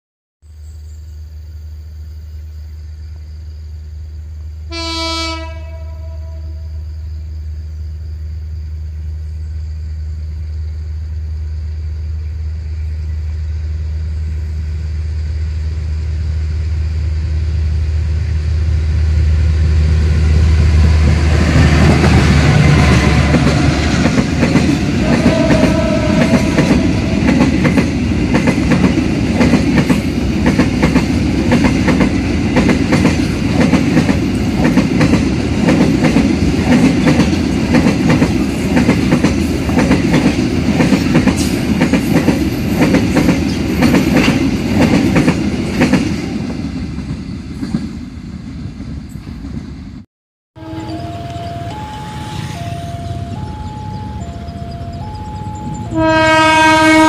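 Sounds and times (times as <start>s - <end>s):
train horn blast: 4.7s - 6.8s, 24.8s - 27.3s, 50.6s - 54.1s, 55.8s - 57.0s
locomotive engine drone: 6.5s - 29.3s, 50.6s - 57.0s.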